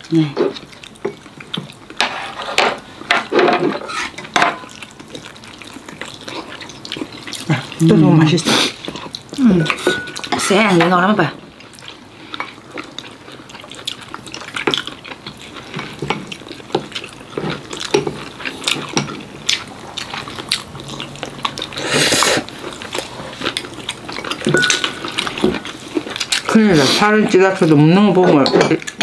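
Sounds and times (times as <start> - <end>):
utensils clinking against bowls: 8.8 - 11.2, 23.5 - 29.0.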